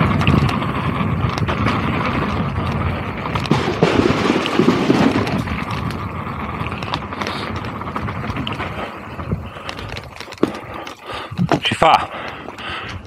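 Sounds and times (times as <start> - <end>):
wind rushing on microphone: 0.0 - 10.4
bike clicks and knocks: 0.0 - 13.0
bike rattling over wooden boardwalk: 0.0 - 13.0
bike tyres rumbling on trail: 0.0 - 13.0.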